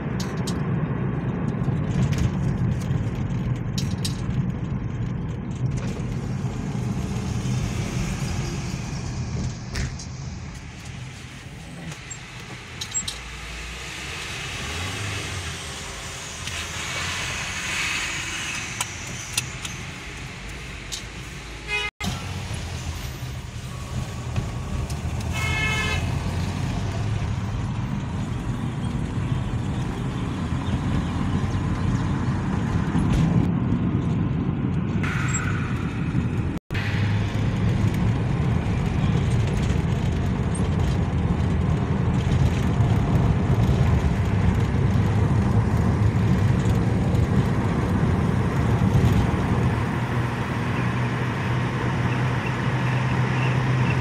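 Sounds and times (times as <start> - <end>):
car engine and road rumble: 0.0 - 54.0
car horn toot: 21.6 - 21.9, 25.3 - 26.2.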